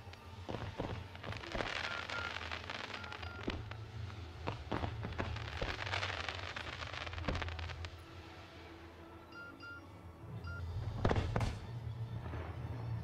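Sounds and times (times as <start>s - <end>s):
fireworks bangs and crackling: 0.0s - 8.0s, 10.8s - 13.0s.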